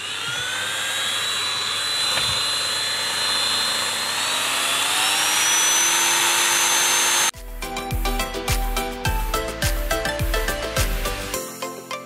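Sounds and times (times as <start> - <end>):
rotary tool cutting metal: 0.0 - 7.3.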